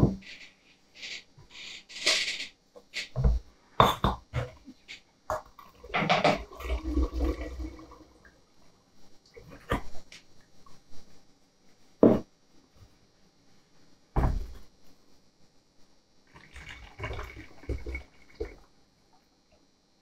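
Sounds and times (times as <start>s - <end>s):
liquid sloshing: 5.6s - 8.3s, 16.3s - 18.7s
liquid pouring through funnel: 5.6s - 8.4s, 16.3s - 18.7s.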